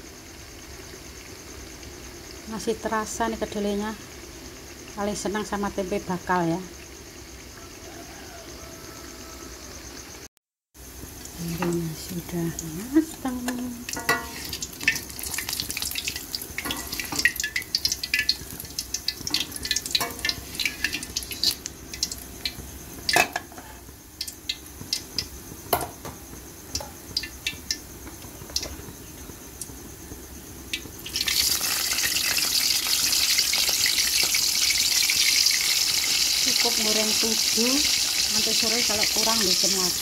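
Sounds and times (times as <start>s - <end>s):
hot oil crackling and popping: 0.0s - 7.4s, 10.7s - 40.0s
food sizzling in oil: 10.7s - 40.0s.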